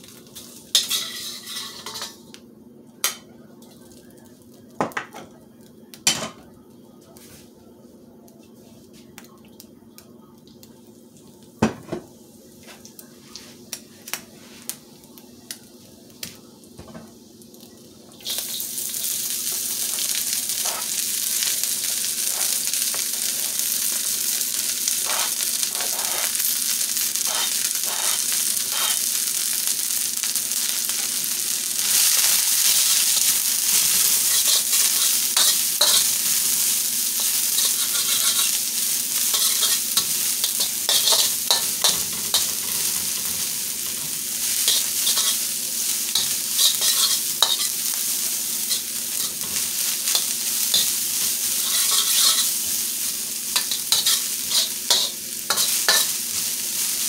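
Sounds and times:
cabbage sizzling in a wok: 0:00.0 - 0:02.4, 0:10.8 - 0:57.0
metal spoon scraping a wok: 0:00.8 - 0:02.2, 0:25.0 - 0:26.3, 0:34.1 - 0:36.1, 0:37.2 - 0:38.6, 0:39.2 - 0:43.4, 0:44.6 - 0:45.4, 0:46.1 - 0:47.7, 0:48.6 - 0:52.6, 0:53.6 - 0:56.1.

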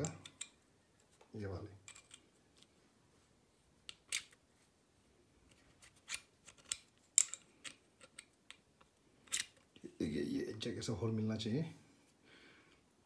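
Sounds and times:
metal parts clicking and scraping: 0:01.8 - 0:02.7, 0:03.9 - 0:04.4, 0:05.4 - 0:09.8.

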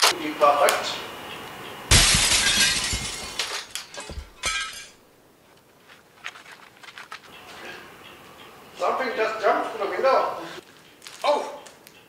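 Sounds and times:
falling glass pieces clinking: 0:01.9 - 0:05.0
glass shattering: 0:01.9 - 0:05.0.

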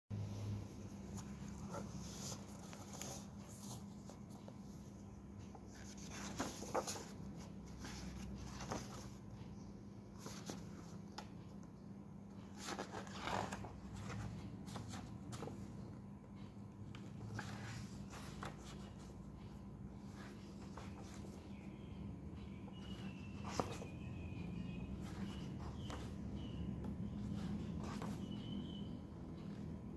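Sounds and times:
book pages turning: 0:01.0 - 0:04.6, 0:05.5 - 0:09.2, 0:10.2 - 0:11.3, 0:12.4 - 0:15.8, 0:17.0 - 0:19.1, 0:20.1 - 0:21.7, 0:22.8 - 0:24.0, 0:25.0 - 0:28.6.

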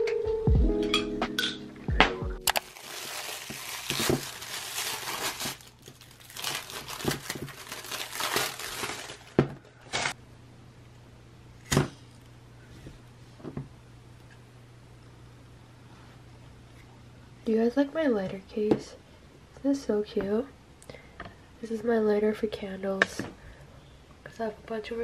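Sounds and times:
plastic wrap crinkling and tearing: 0:02.4 - 0:10.2.

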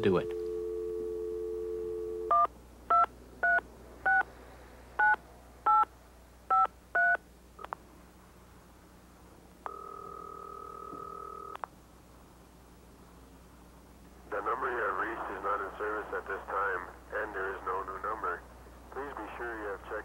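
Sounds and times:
steady phone line tone: 0:00.0 - 0:04.3, 0:09.6 - 0:11.6.

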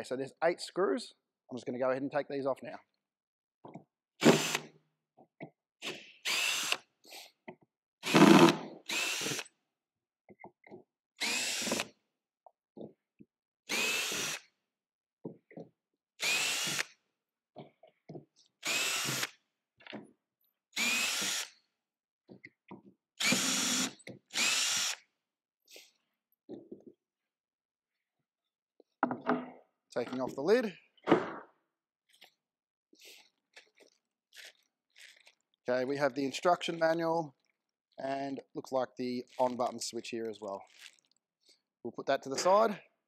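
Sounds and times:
cordless drill motor spinning: 0:04.2 - 0:04.6, 0:06.2 - 0:06.9, 0:08.0 - 0:09.4, 0:11.2 - 0:11.9, 0:13.7 - 0:14.5, 0:16.2 - 0:16.9, 0:18.6 - 0:19.4, 0:20.8 - 0:21.6, 0:23.2 - 0:25.0.

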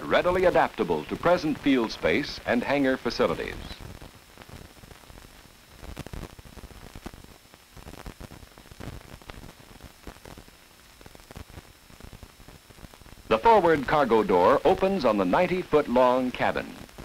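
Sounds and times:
faint thin high whine: 0:00.0 - 0:17.0
film soundtrack hiss and crackle: 0:00.0 - 0:17.0.

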